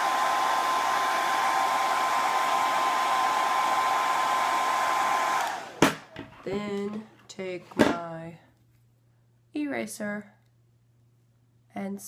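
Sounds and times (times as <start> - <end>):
hair dryer blowing: 0.0 - 6.0
hair dryer switch click: 5.3 - 5.9.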